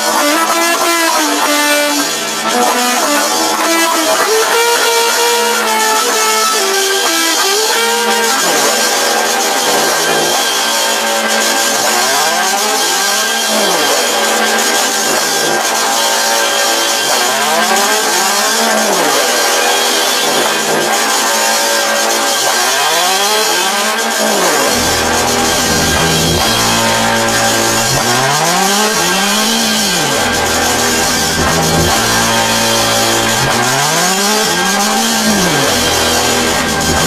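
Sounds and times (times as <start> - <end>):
harsh noise with pitched sweep: 22.0 - 37.0
low drone: 24.3 - 37.0.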